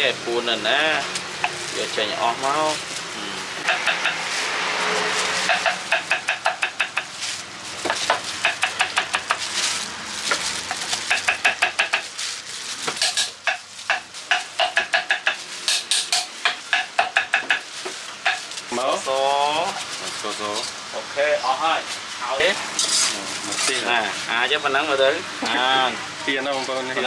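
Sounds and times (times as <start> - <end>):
knife chopping on wooden board: 3.6 - 4.2, 5.3 - 7.2, 7.8 - 9.5, 10.3 - 12.1, 12.8 - 18.4.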